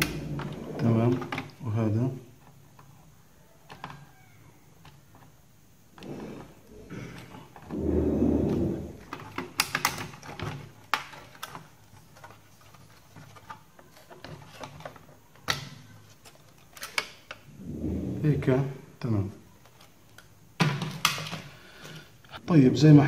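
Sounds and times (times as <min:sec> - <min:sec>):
plastic case scraping: 0:00.0 - 0:01.6, 0:06.0 - 0:15.1.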